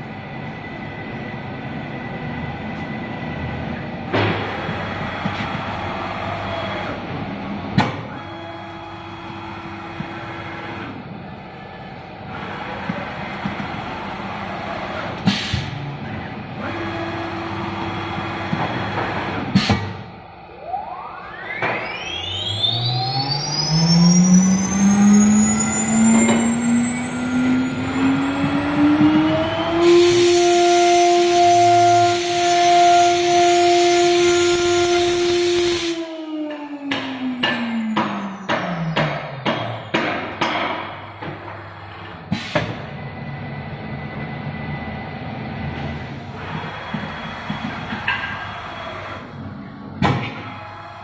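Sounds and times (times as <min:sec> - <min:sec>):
machine mechanical hum: 0:00.0 - 0:51.0
pneumatic burst: 0:15.0 - 0:15.8, 0:18.5 - 0:20.1, 0:29.8 - 0:36.0, 0:37.1 - 0:43.0
spindle whine: 0:15.8 - 0:51.0.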